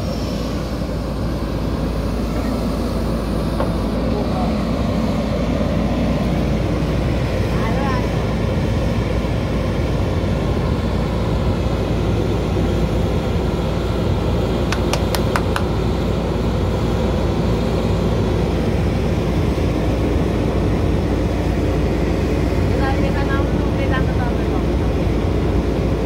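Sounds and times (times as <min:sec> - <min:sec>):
diesel engine running: 0:00.0 - 0:26.0
sharp clicks: 0:14.7 - 0:15.7.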